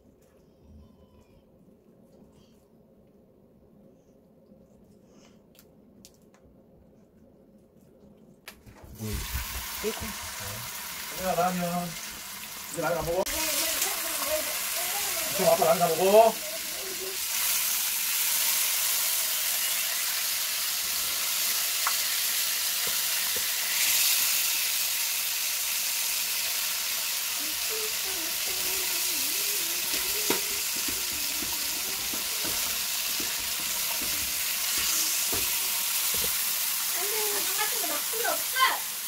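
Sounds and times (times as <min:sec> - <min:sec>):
food sizzling in frying pan: 0:08.9 - 0:39.0
utensils clicking in pan: 0:29.5 - 0:36.6.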